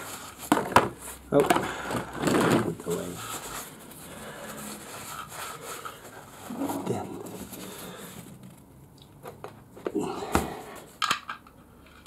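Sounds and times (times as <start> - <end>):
paper towel rustling and rubbing: 0.0 - 1.4, 2.2 - 8.7.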